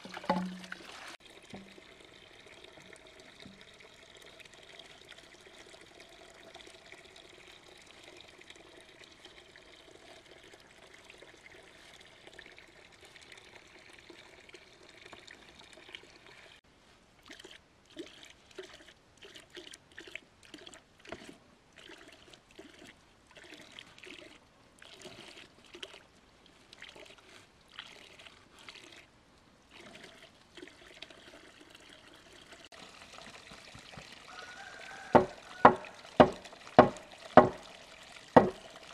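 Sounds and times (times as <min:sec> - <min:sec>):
water splashing and gurgling: 0:00.0 - 0:02.0, 0:29.7 - 0:38.9
water trickling: 0:00.0 - 0:16.6, 0:29.7 - 0:38.9.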